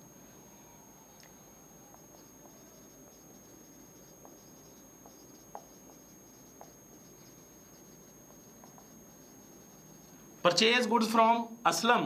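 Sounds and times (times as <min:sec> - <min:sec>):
marker squeaking on whiteboard: 0:01.2 - 0:10.5.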